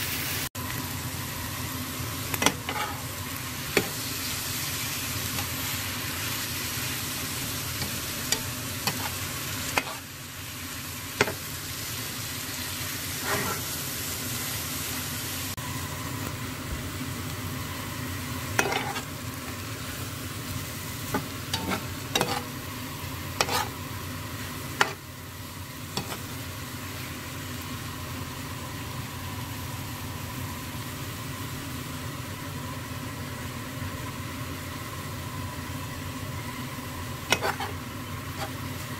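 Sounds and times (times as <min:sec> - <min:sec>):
food sizzling in frying pan: 0:00.0 - 0:38.9
spatula scraping pan: 0:02.4 - 0:03.1, 0:07.7 - 0:10.1, 0:13.1 - 0:13.8, 0:18.6 - 0:19.1, 0:21.0 - 0:22.6, 0:23.3 - 0:23.8, 0:24.7 - 0:25.0, 0:25.9 - 0:26.3, 0:37.3 - 0:38.6.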